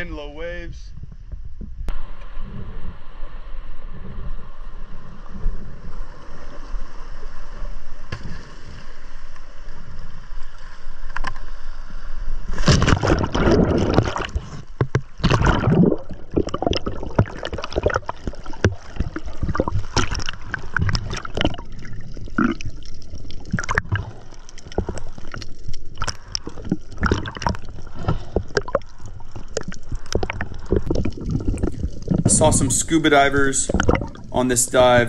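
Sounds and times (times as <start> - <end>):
wind on microphone: 0.0 - 6.3
low rumble of surf: 0.0 - 8.2
person splashing into water: 12.5 - 28.9.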